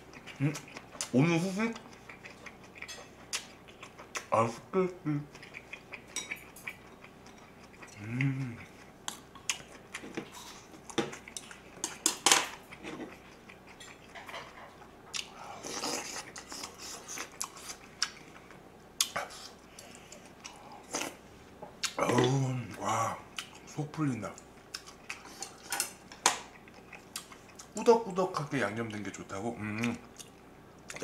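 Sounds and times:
chewing and mouth noises: 0.0s - 4.6s, 5.2s - 21.2s, 21.8s - 27.9s, 29.6s - 31.0s
person humming: 4.4s - 5.3s, 8.0s - 8.8s, 22.0s - 23.2s.

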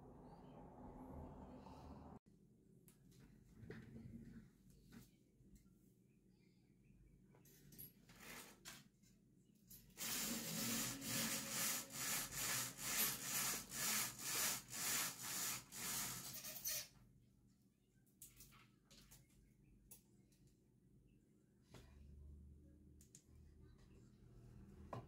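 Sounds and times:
rhythmic rubbing strokes: 10.0s - 16.4s.

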